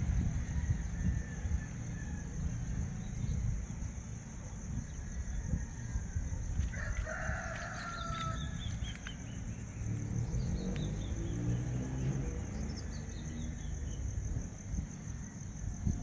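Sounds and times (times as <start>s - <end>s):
steady low rumble: 0.0s - 11.3s, 12.6s - 16.0s
rooster crowing: 0.4s - 2.6s, 5.0s - 9.0s
small birds chirping: 7.1s - 14.2s.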